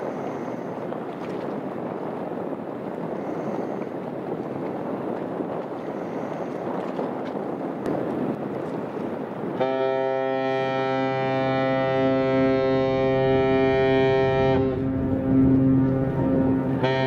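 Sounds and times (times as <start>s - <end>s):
wind rumbling on microphone: 0.0s - 17.0s
ship's horn blast: 9.5s - 17.0s.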